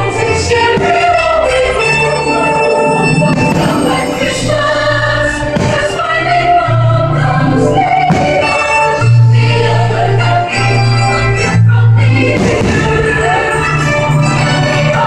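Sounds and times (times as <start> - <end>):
choir singing: 0.0 - 15.0
music with sustained bass notes: 0.0 - 15.0.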